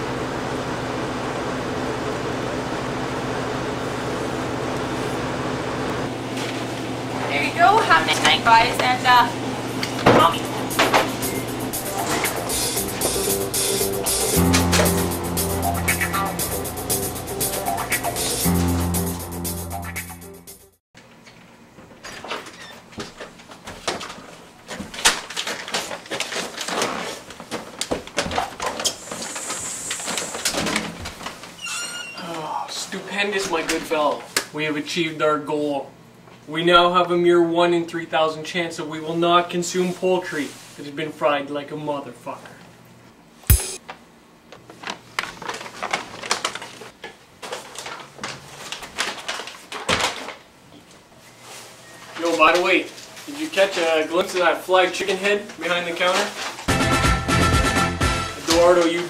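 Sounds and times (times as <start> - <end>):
paper bag crinkling: 25.1 - 27.8, 44.7 - 50.4, 55.9 - 56.7
front door opening: 30.6 - 32.3.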